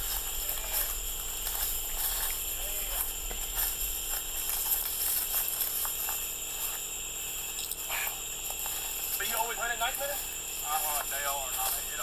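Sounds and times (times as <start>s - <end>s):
footsteps through brush: 0.0s - 7.7s, 8.4s - 12.0s
night insects hissing: 0.0s - 12.0s
rustling leaves and twigs: 0.0s - 12.0s.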